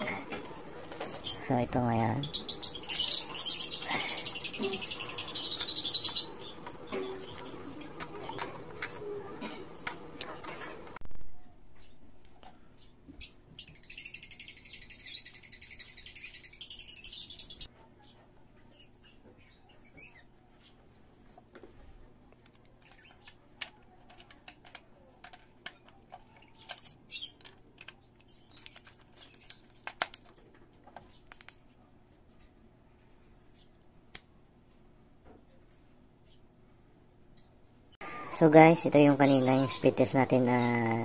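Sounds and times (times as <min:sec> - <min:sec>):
birds chirping: 0:00.0 - 0:11.0, 0:11.7 - 0:21.2, 0:22.4 - 0:23.6, 0:25.7 - 0:30.2, 0:36.2 - 0:41.0.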